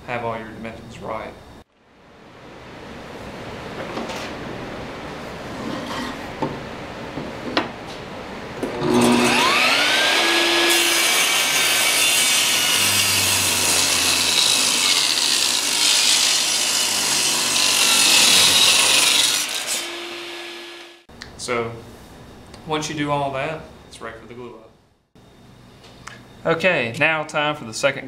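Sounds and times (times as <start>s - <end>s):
table saw motor whine: 8.7s - 21.0s
saw ripping wood: 8.8s - 20.9s.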